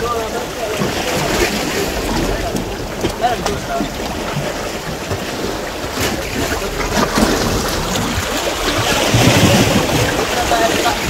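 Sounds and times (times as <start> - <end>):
sea waves washing against rocks: 0.0 - 11.0
wind buffeting microphone: 0.0 - 11.0.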